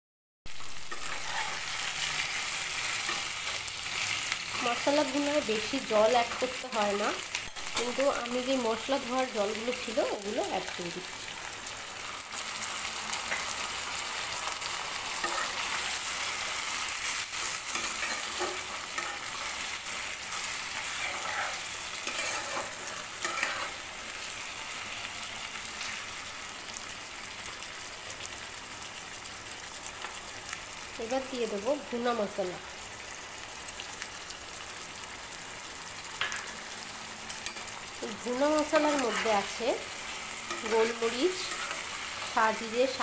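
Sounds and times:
chicken sizzling in a frying pan: 0.5 - 43.0
spatula scraping pan: 0.7 - 4.9, 15.1 - 23.9, 38.6 - 42.4.

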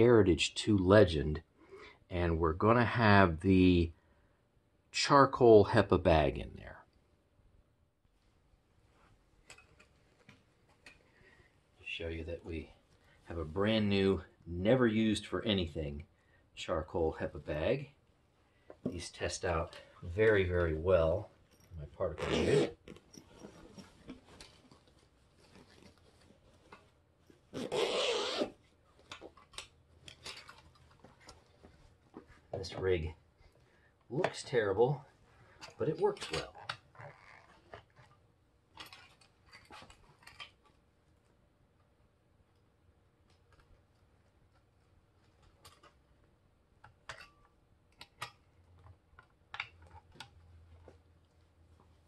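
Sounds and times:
fabric bag rustling: 21.4 - 28.3.

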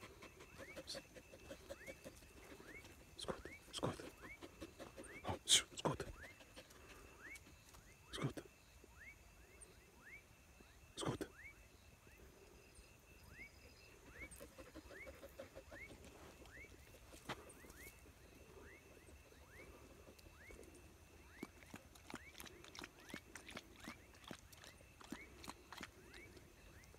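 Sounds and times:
animal chirping: 14.1 - 16.9.

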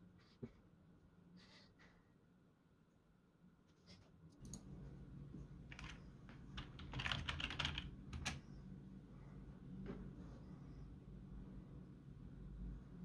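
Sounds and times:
computer keyboard typing: 5.7 - 8.4.

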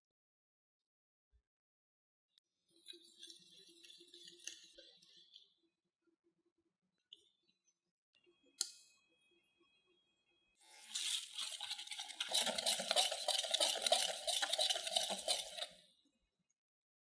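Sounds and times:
whisk beating batter in glass bowl: 10.7 - 15.8.

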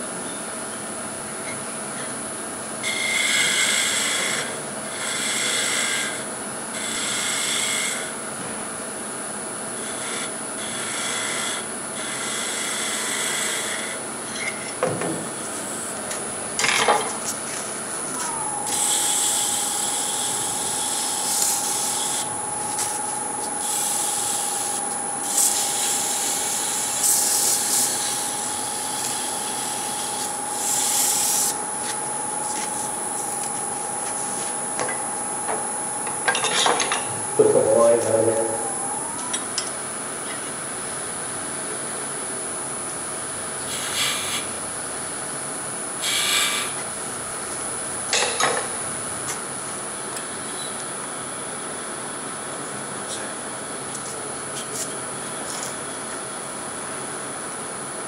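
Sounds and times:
lathe whine: 0.5 - 58.0
wood rasping on lathe: 2.9 - 6.2, 9.8 - 14.0.

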